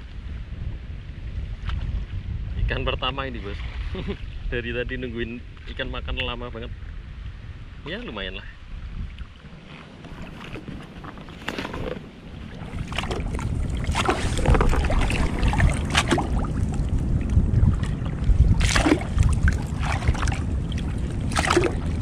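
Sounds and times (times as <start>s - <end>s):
wind buffeting microphone: 0.0s - 22.0s
water sloshing and splashing: 9.0s - 22.0s.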